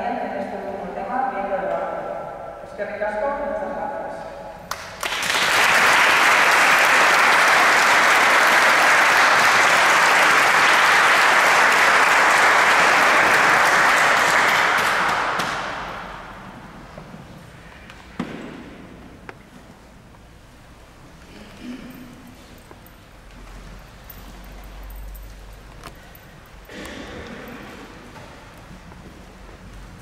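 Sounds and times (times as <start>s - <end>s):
audience applauding: 4.7s - 16.2s.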